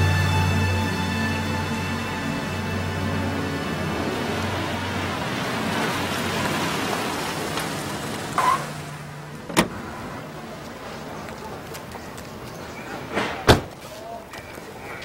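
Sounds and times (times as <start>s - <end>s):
car door clicking open: 9.5s - 9.8s.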